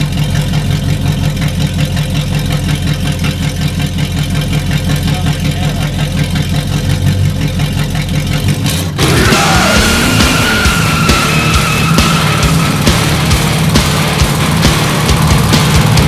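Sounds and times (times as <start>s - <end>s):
car engine idling: 0.0s - 16.0s
loud music: 8.9s - 16.0s.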